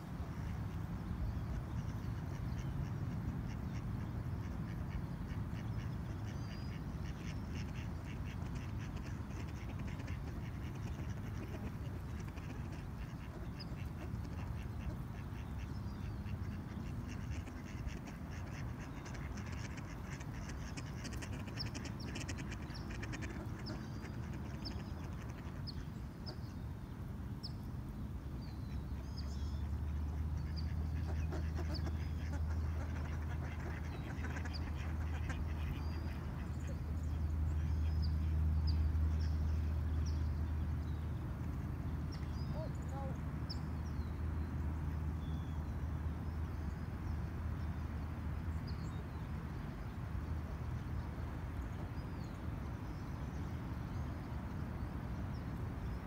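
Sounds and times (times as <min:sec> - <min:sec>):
distant traffic rumble: 0:00.0 - 0:56.0
small birds chirping: 0:00.4 - 0:50.0
ducks quacking: 0:01.5 - 0:26.4, 0:29.6 - 0:40.2.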